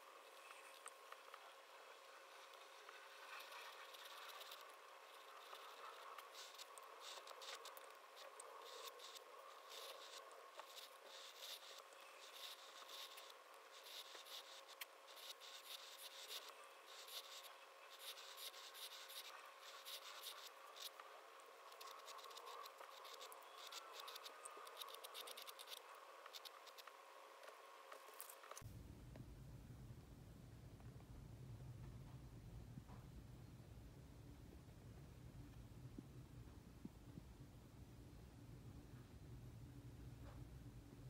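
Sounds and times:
pen scratching on paper: 0:02.3 - 0:27.0.

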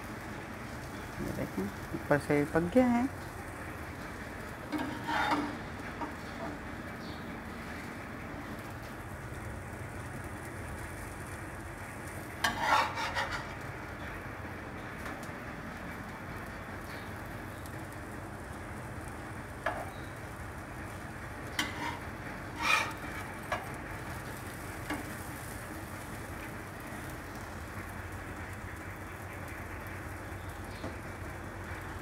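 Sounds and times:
bread sizzling on griddle: 0:00.0 - 0:32.0
metal spatula scraping pan: 0:04.7 - 0:05.6, 0:12.4 - 0:13.6, 0:21.6 - 0:23.7.

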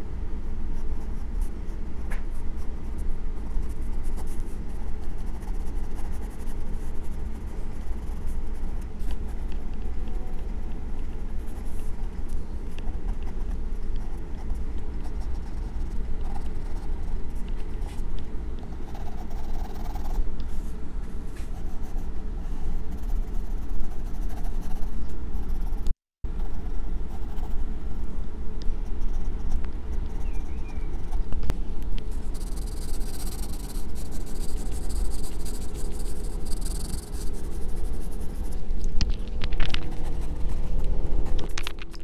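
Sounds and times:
steady low rumble: 0:00.0 - 0:42.0
pencil scratching on paper: 0:02.9 - 0:12.1, 0:32.1 - 0:38.6.

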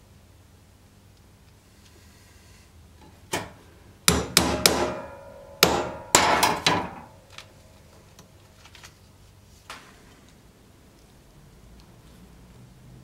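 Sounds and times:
hammer striking pricking iron: 0:04.1 - 0:07.1.

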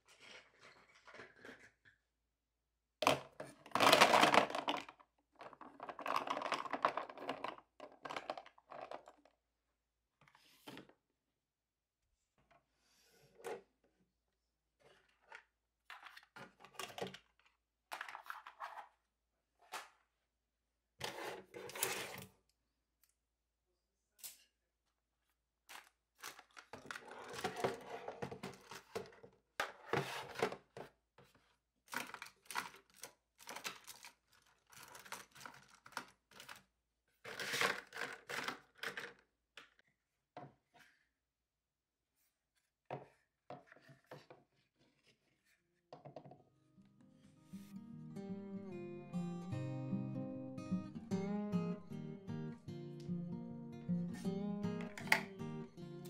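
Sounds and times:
pens and plastic trays clattering: 0:03.0 - 0:09.3, 0:14.8 - 0:18.9, 0:25.7 - 0:30.9, 0:31.9 - 0:36.6, 0:37.2 - 0:39.2.

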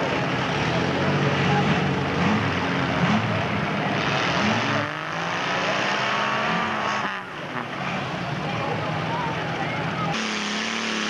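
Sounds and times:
truck engine revving in mud: 0:00.0 - 0:11.0.

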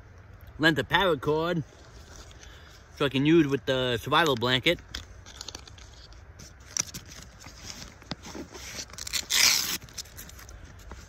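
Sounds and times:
hook-and-loop flap ripping open: 0:06.7 - 0:10.5.

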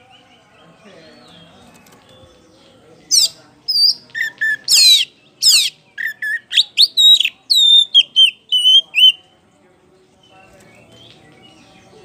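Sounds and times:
bird singing whistled phrases: 0:03.2 - 0:09.2.

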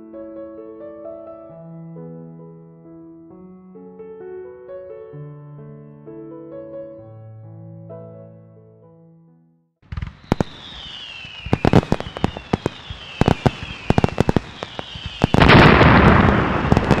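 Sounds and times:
soft piano music: 0:00.0 - 0:09.7
fireworks cracking and popping: 0:09.8 - 0:17.0
falling firework whistles: 0:09.9 - 0:17.0.

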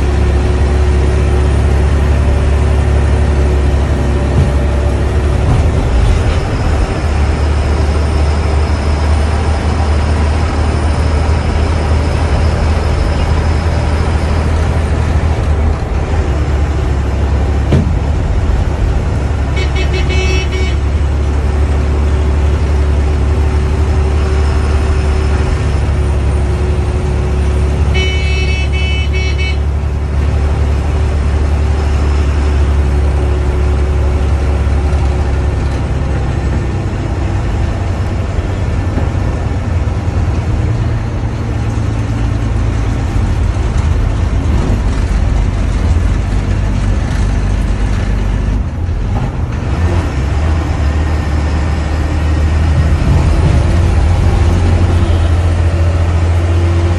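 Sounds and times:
bus engine and road rumble: 0:00.0 - 0:56.9
bus horn: 0:19.4 - 0:21.4, 0:27.4 - 0:30.1, 0:54.8 - 0:56.5.

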